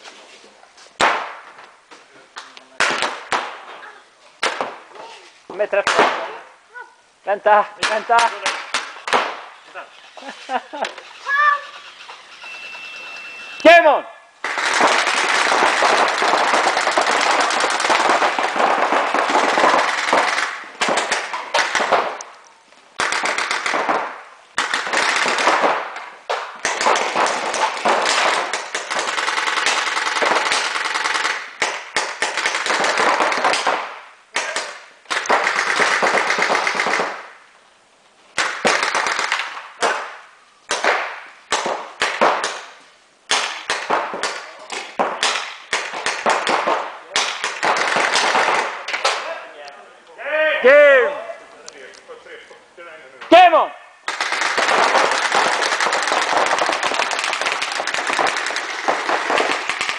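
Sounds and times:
paintball markers firing rapidly: 0:14.4 - 0:22.3, 0:23.0 - 0:37.3, 0:38.4 - 0:42.7, 0:43.3 - 0:49.2, 0:54.1 - 0:59.9.

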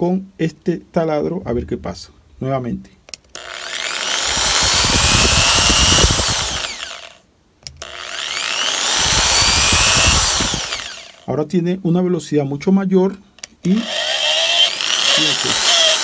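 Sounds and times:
electric drill whining: 0:03.3 - 0:07.2, 0:07.8 - 0:11.2, 0:13.7 - 0:16.0.

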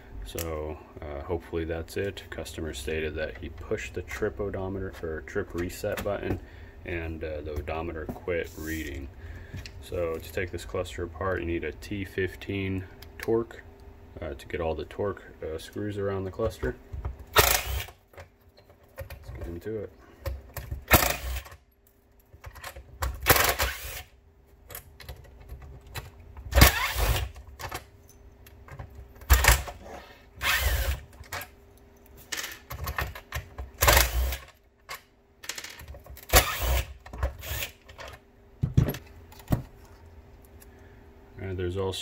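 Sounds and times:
impact driver removing screws: 0:17.4 - 0:17.9, 0:23.2 - 0:24.0, 0:30.4 - 0:31.0, 0:33.8 - 0:34.5.

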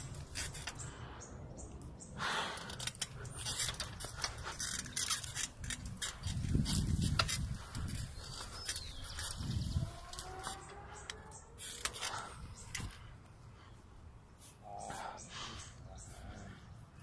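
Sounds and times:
camera handling clicks and rustles: 0:02.6 - 0:13.0
wind rumble on microphone: 0:05.5 - 0:13.1.

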